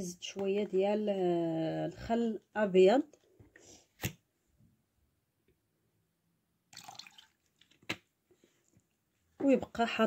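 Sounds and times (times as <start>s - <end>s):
water splashing in a basin: 6.7s - 8.0s.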